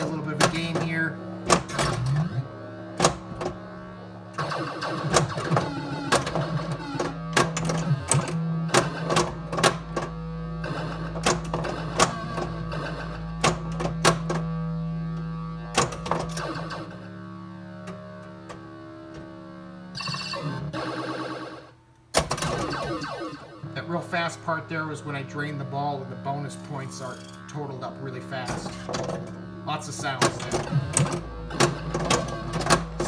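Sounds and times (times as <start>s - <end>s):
pinball playfield clacks: 0.0s - 2.4s, 5.0s - 10.2s, 10.8s - 14.6s, 15.7s - 16.8s, 30.0s - 33.0s
electronic game drone and tones: 0.0s - 33.0s.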